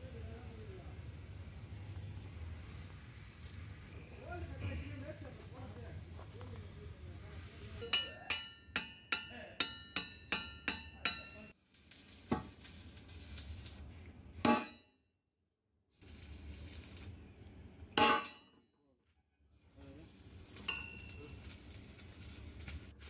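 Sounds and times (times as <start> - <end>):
hammer striking steel: 7.8 - 11.5, 14.4 - 15.0, 17.9 - 18.6, 20.6 - 21.2.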